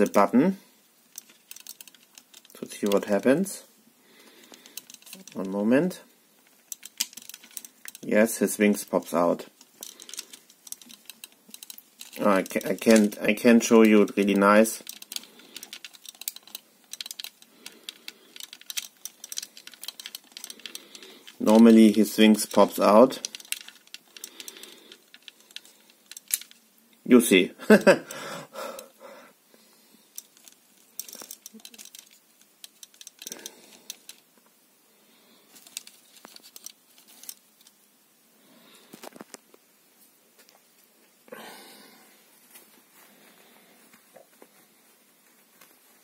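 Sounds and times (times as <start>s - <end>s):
plastic toy clicks: 1.1s - 3.2s, 4.4s - 5.5s, 6.5s - 8.1s, 9.7s - 26.6s, 30.1s - 34.2s.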